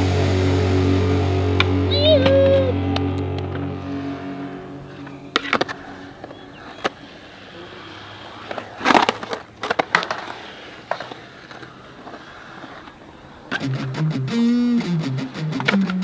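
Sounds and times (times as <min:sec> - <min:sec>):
skateboard rolling on concrete: 0:00.0 - 0:13.8
loud skateboard scrape: 0:04.8 - 0:13.6
skateboard clacks: 0:05.3 - 0:13.8, 0:15.2 - 0:16.0.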